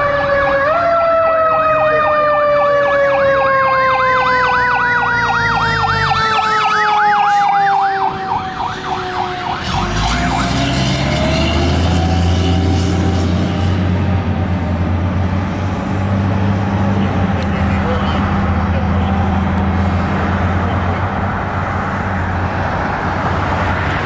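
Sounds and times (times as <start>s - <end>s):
electronic siren yelp: 0.0s - 12.9s
steady siren tone: 0.0s - 14.8s
truck engine rumble: 0.0s - 24.0s.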